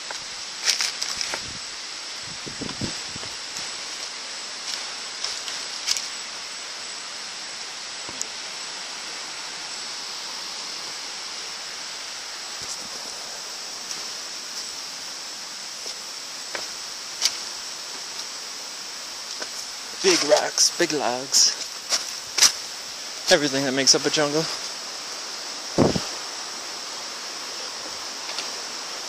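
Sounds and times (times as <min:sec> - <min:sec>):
river water rushing: 0:03.4 - 0:29.0.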